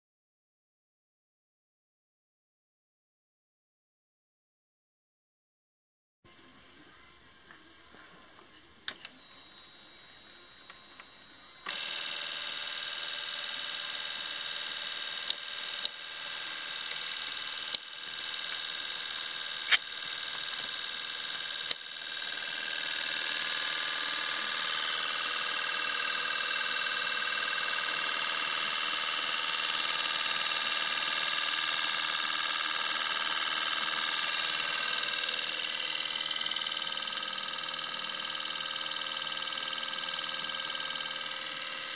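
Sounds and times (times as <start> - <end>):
fuel injectors hissing and buzzing: 10.1 - 41.9
sharp clicks: 11.7 - 41.9.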